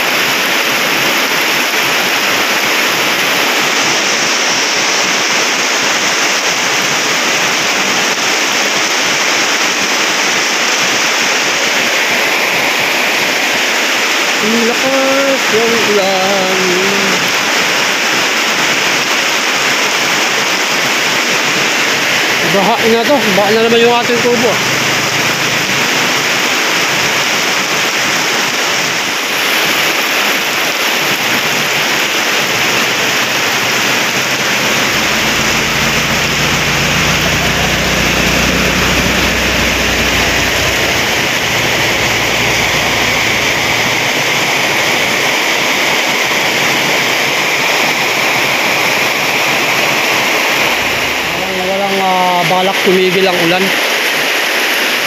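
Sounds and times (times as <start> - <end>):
heavy rain pouring: 0.0 - 55.0
vehicle engine rumbling past: 23.2 - 27.1, 31.4 - 46.0, 49.1 - 52.4.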